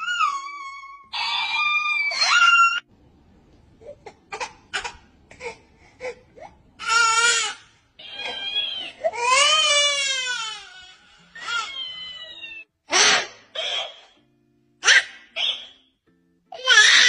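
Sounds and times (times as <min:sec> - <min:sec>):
baby crying: 0:00.0 - 0:02.9, 0:03.9 - 0:14.2, 0:16.6 - 0:17.0.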